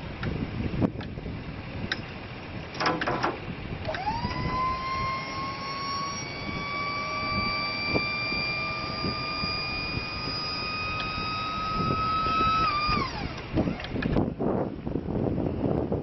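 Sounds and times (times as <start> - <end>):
hydraulic pump whine: 1.4 - 14.3
short metallic rattle: 2.7 - 3.4.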